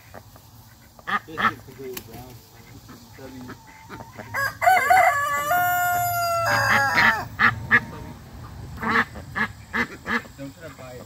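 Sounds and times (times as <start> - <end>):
ducks quacking: 0.0 - 11.0
rooster crowing: 3.9 - 7.5.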